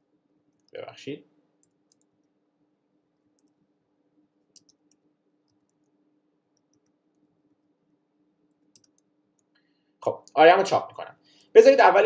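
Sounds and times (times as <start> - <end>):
low steady hum: 0.0 - 12.0
keyboard typing clicks: 1.6 - 2.2, 4.5 - 5.8, 8.5 - 9.1.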